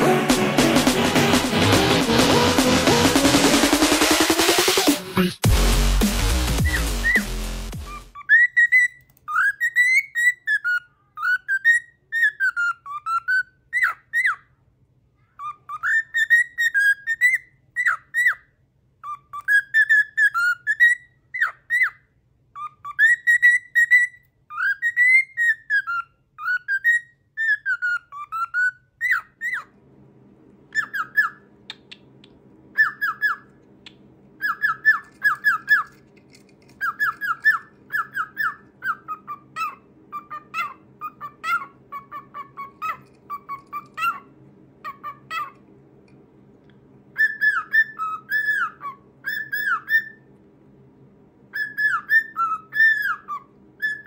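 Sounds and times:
cockatiel whistling: 0:06.5 - 0:14.5, 0:15.4 - 0:18.4, 0:19.0 - 0:29.7, 0:30.7 - 0:32.0, 0:32.7 - 0:36.0, 0:36.8 - 0:45.6, 0:47.1 - 0:50.3, 0:51.5 - 0:54.0
faint low hum: 0:07.9 - 0:54.0.

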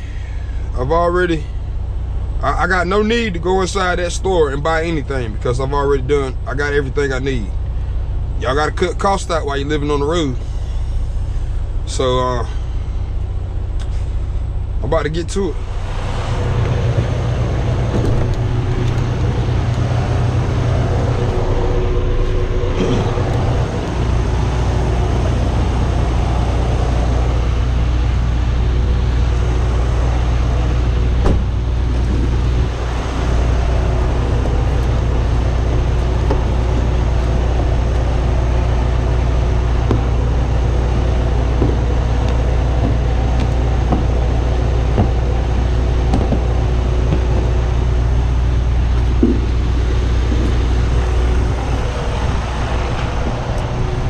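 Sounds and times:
diesel engines idling: 0:00.0 - 0:54.0
faint knocks: 0:41.5 - 0:47.5.

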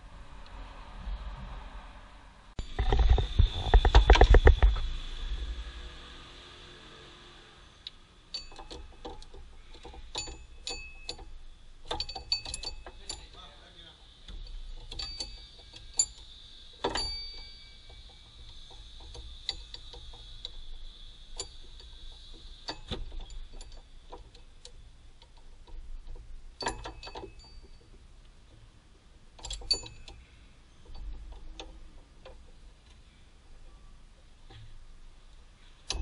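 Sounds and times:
metal tool clicking on engine: 0:07.8 - 0:28.0, 0:29.4 - 0:33.0.

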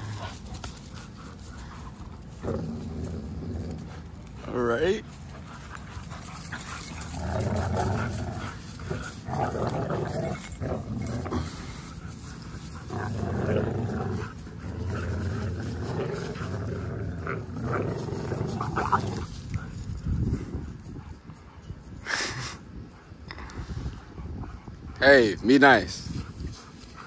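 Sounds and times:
dogs growling: 0:00.0 - 0:25.0.

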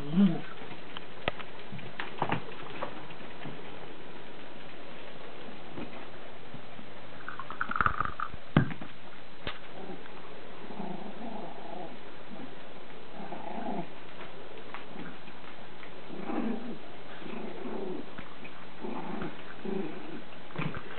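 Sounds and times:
puppy growling: 0:00.0 - 0:00.7, 0:09.7 - 0:14.0, 0:16.0 - 0:20.9.

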